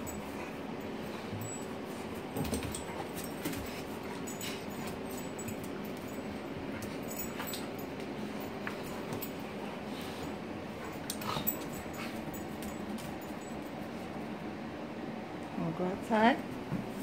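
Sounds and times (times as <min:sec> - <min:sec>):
dogs growling while playing: 0:00.0 - 0:12.9
dogs scuffling on tile: 0:00.0 - 0:14.3.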